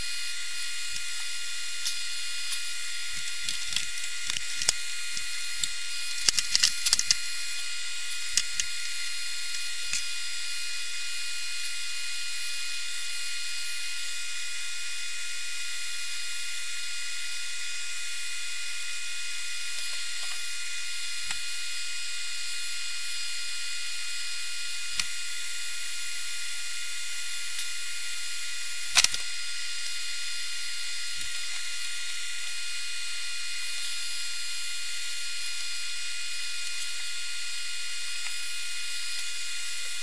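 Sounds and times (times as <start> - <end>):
small motorised tool whining: 0.0 - 12.7.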